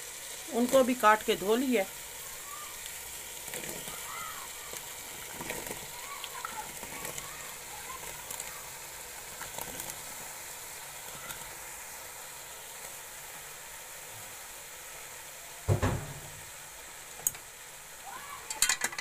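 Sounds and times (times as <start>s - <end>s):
oil sizzling in a pot: 0.0s - 19.0s
heavy thump: 15.7s - 16.4s
clinks: 18.5s - 19.0s.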